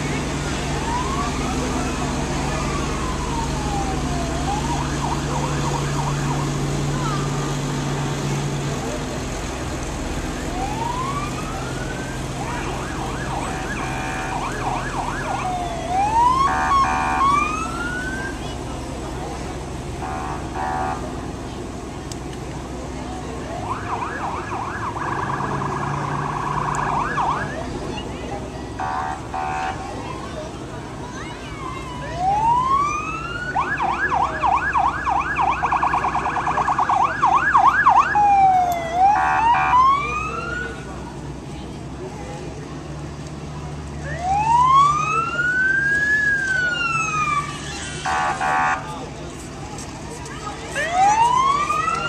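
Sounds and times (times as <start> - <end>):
emergency vehicle siren: 0.0 - 7.6, 10.2 - 19.4, 20.0 - 21.3, 23.0 - 28.1, 28.8 - 30.2, 31.0 - 41.0, 44.0 - 49.9, 50.6 - 52.0
electronic horn blasts: 13.8 - 14.5, 20.0 - 21.0, 28.8 - 29.8, 48.1 - 48.8.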